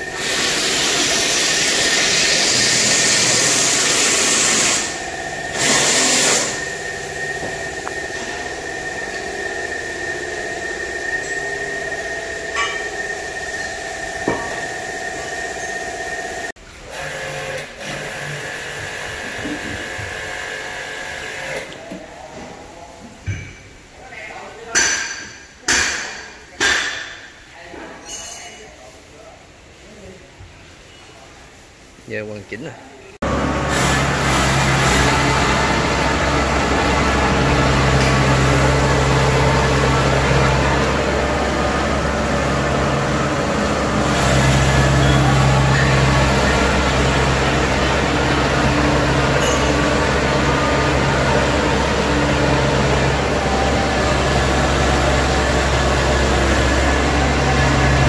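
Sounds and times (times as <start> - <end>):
diesel engine running steadily: 0.0 - 16.5, 33.2 - 58.0
motor whine: 0.0 - 16.5, 33.2 - 58.0.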